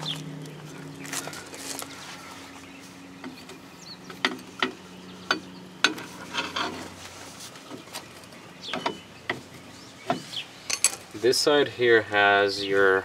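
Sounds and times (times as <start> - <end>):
scraping rattle: 3.2 - 7.9.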